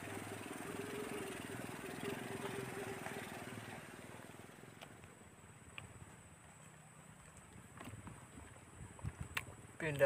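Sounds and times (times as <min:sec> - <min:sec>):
small engine running: 0:00.0 - 0:04.9.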